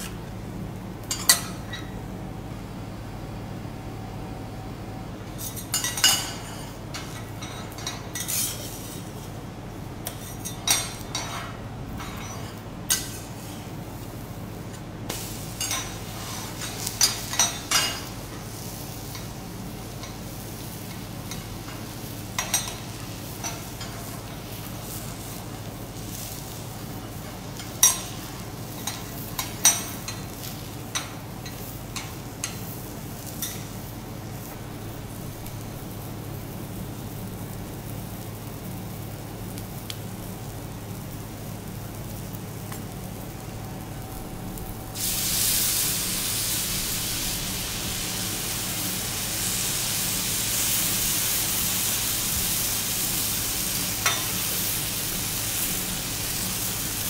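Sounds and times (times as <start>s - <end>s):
food sizzling on griddle: 5.4s - 9.4s, 10.0s - 57.0s
metal spatulas scraping griddle: 8.2s - 9.1s, 15.6s - 18.0s.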